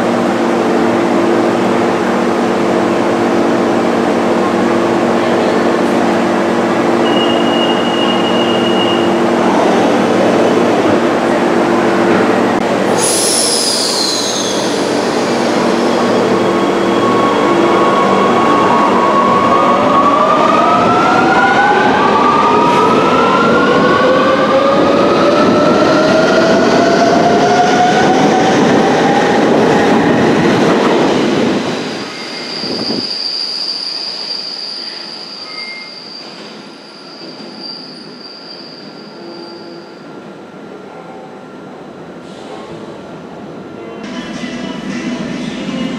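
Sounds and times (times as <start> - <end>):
train cars rumbling: 0.1 - 33.3
high squeal of wheels: 7.0 - 9.2, 12.9 - 16.7, 32.1 - 40.0.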